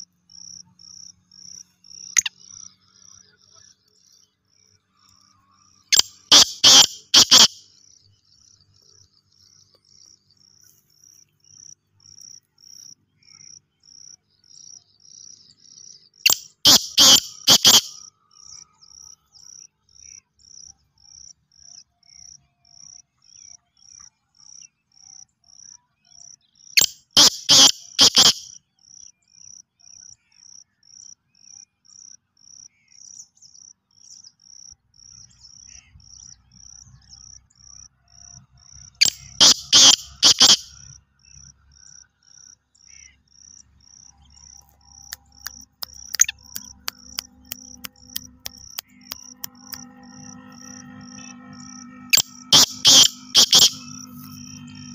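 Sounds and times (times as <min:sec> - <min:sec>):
cricket chirping: 0:00.0 - 0:54.9
bird calling quick notes: 0:05.9 - 0:07.6, 0:16.3 - 0:18.0, 0:27.2 - 0:28.5, 0:39.0 - 0:40.7, 0:45.9 - 0:47.0, 0:52.2 - 0:53.9.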